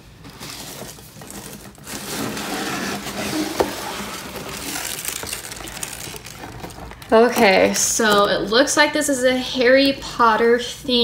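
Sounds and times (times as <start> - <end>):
cardboard box flaps scraping: 1.8 - 5.2.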